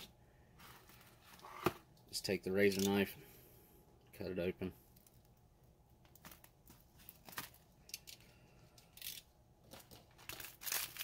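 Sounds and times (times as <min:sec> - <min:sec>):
pouch crinkling: 0:09.7 - 0:11.0.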